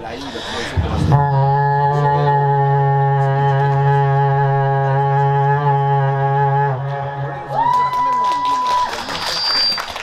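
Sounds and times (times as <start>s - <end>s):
man imitating ship's horn: 1.1s - 7.5s.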